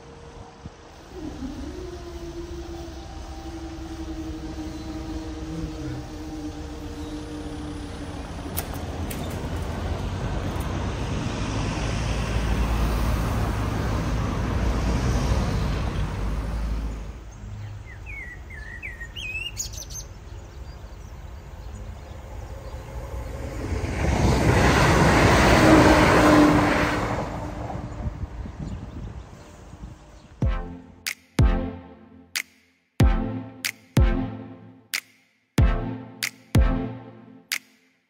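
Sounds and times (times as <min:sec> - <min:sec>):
electric train passing: 0:00.0 - 0:17.3, 0:21.1 - 0:31.0
bird chirping: 0:01.0 - 0:09.5, 0:17.3 - 0:23.0.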